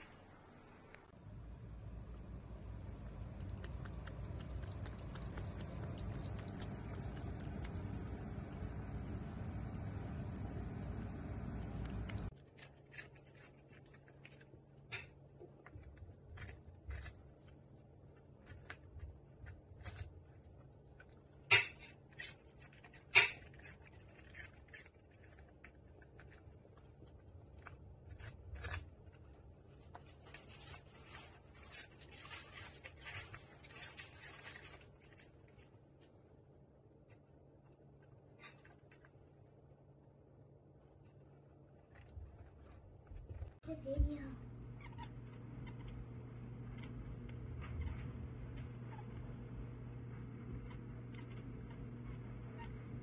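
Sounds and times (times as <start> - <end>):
dog crunching carrot: 3.0 - 10.3, 11.6 - 30.3
cat lapping water: 3.0 - 12.3.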